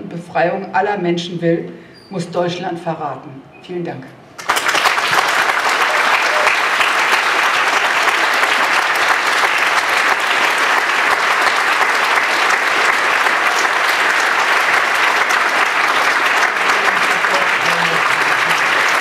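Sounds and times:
large audience applauding: 4.4 - 19.0.

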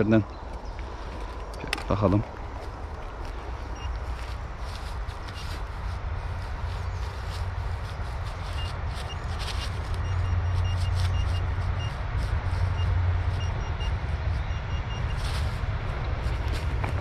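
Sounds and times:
steady low rumble: 0.0 - 17.0
scraping in soil: 2.6 - 17.0
metal detector pinpointer beeping: 3.7 - 4.0, 8.5 - 12.0, 12.6 - 15.3.

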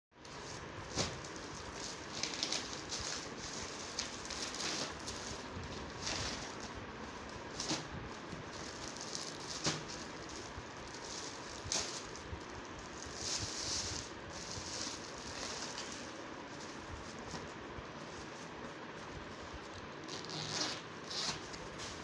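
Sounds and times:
plastic packaging crinkling: 0.8 - 17.5.

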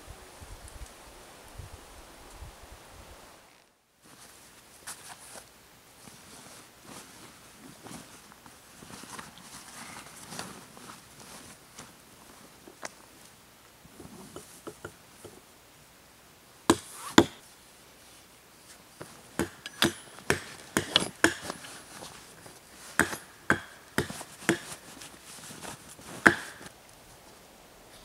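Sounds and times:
camp gear clicks and knocks: 13.9 - 15.4, 18.7 - 26.8.

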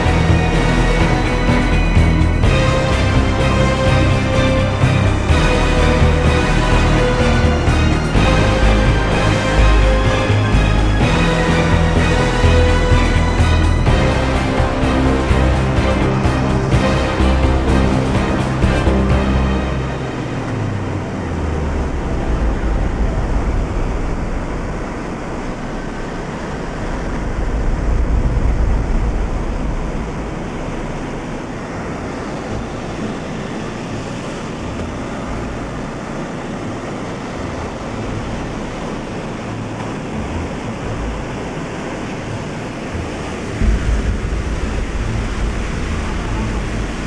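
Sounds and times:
aircraft engines roaring: 0.0 - 47.0
wind buffeting microphone: 20.6 - 36.1, 37.5 - 47.0
loud bump: 43.6 - 47.0.

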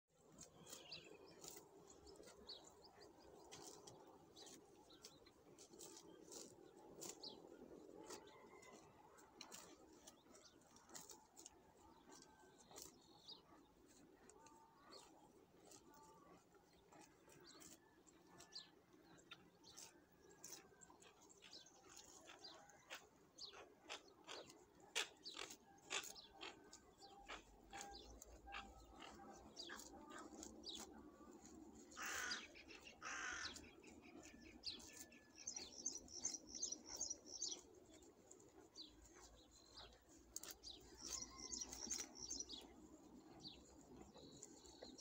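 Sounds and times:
faint birds chirping: 9.6 - 45.0.

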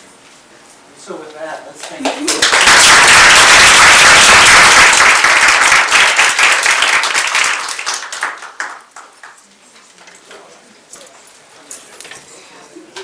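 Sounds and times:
audience applauding: 2.0 - 9.4.

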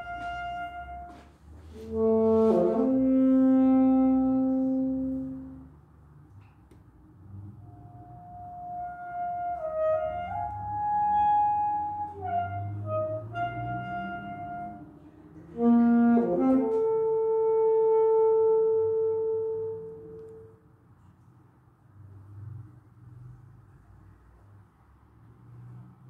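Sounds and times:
saxophone slow melody: 0.0 - 5.8, 7.6 - 20.7.

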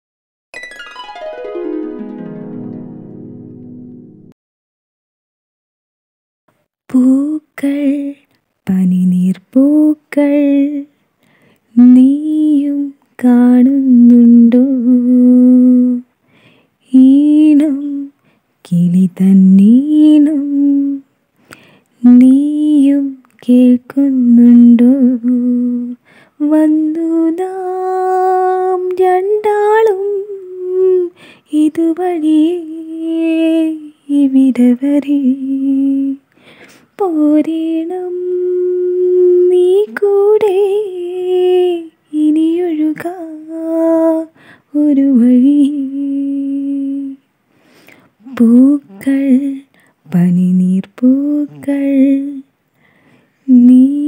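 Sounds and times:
person singing slow melody: 37.0 - 52.5.

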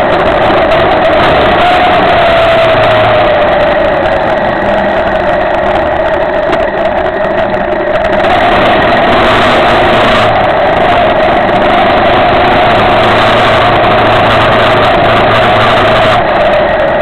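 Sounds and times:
motorcycle engine running: 0.0 - 17.0
wind rush on microphone: 0.0 - 17.0.

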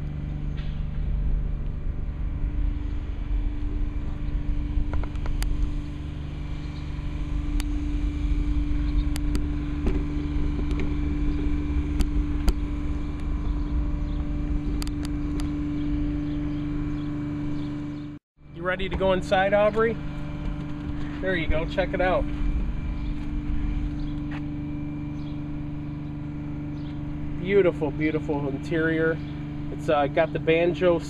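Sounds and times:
wind rumble on microphone: 0.0 - 17.2
engine humming steadily: 0.0 - 31.0.

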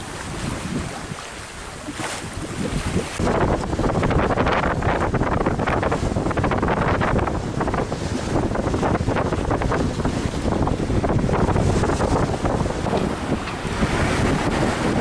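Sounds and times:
sea splashing along hull: 0.0 - 15.0
wind buffeting microphone: 0.0 - 15.0.

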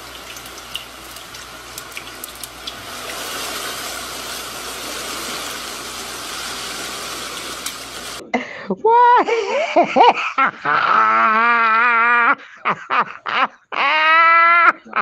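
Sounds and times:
floodwater rushing down a street: 0.0 - 8.2.

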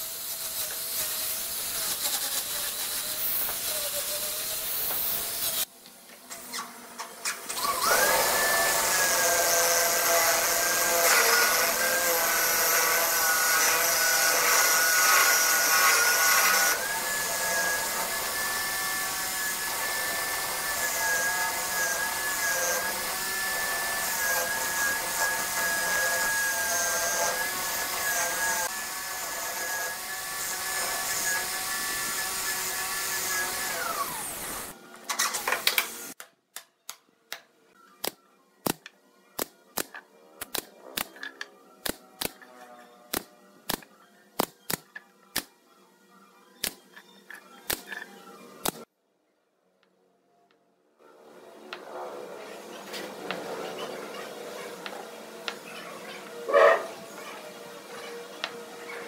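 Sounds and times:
electric drill motor whining: 7.5 - 34.8.

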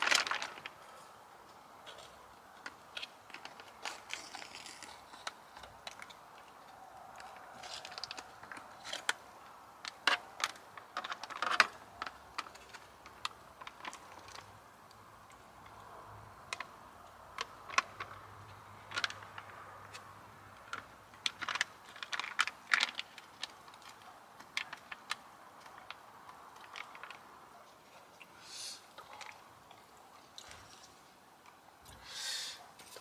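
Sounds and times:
short hiss: 28.4 - 28.9, 32.0 - 32.6.

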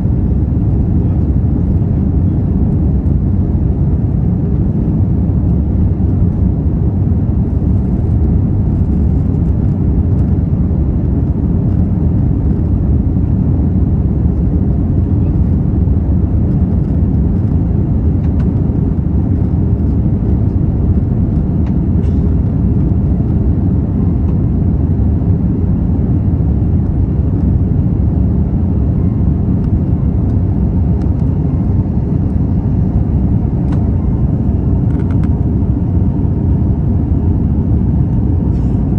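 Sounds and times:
jet engines roaring in cabin: 0.0 - 38.9
rushing air: 15.9 - 38.9.

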